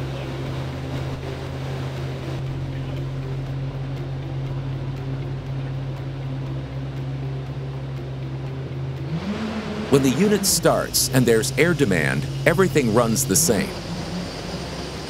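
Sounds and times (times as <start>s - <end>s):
air compressor diesel engine running: 9.8s - 15.0s.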